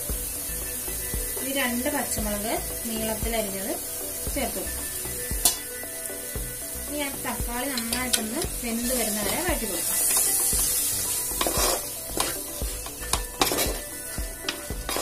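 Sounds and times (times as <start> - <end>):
oil sizzling: 0.0 - 15.0
spatula scraping a pot: 9.3 - 13.9, 14.5 - 15.0.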